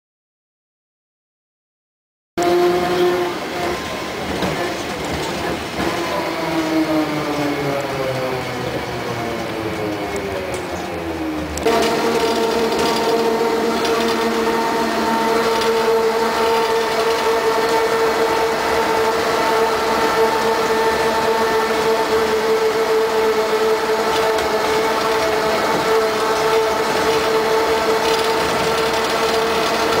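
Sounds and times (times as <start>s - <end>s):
electric traction whine: 6.0s - 30.0s
vehicle running noise: 8.8s - 17.3s.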